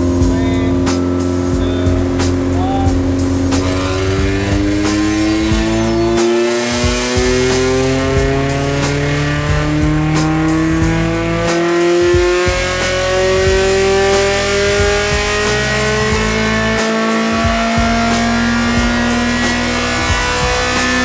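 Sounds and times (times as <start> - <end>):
race car engine revving: 0.0 - 21.0.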